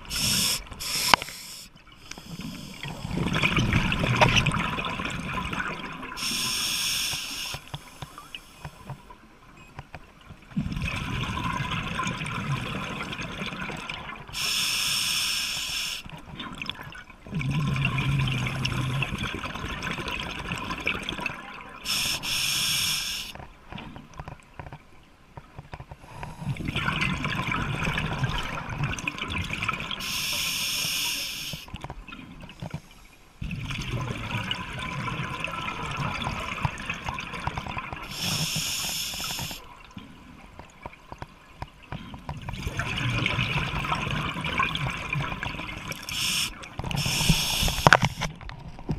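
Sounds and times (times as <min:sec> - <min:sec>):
regulator breath hiss: 0:00.1 - 0:02.9, 0:06.2 - 0:08.6, 0:14.4 - 0:16.0, 0:21.9 - 0:23.4, 0:30.0 - 0:31.7, 0:38.1 - 0:39.6, 0:46.1 - 0:48.3
bubbles gurgling underwater: 0:02.4 - 0:06.2, 0:10.5 - 0:14.4, 0:16.3 - 0:21.9, 0:26.2 - 0:30.0, 0:33.4 - 0:38.6, 0:42.0 - 0:48.2.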